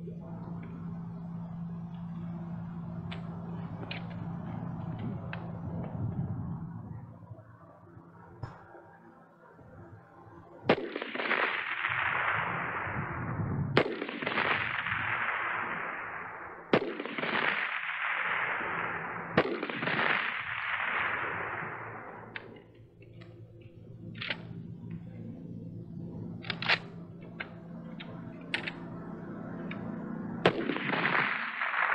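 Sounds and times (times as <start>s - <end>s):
rifle shots with echo: 10.6s - 23.3s, 26.4s - 31.9s.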